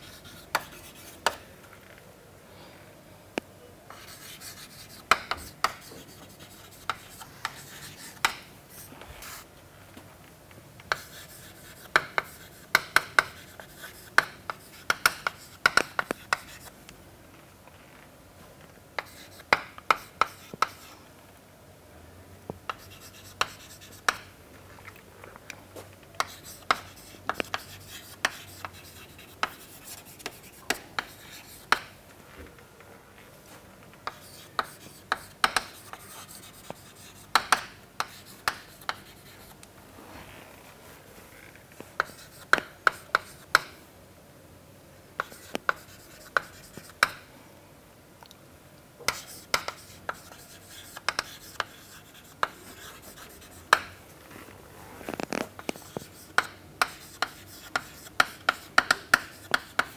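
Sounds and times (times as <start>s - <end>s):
chalk tapping and scratching: 0.0s - 1.4s, 3.9s - 9.5s, 10.9s - 16.7s, 19.0s - 21.0s, 22.7s - 24.3s, 26.2s - 32.0s, 34.0s - 39.6s, 42.0s - 43.7s, 45.2s - 47.2s, 49.1s - 54.0s, 55.1s - 59.9s.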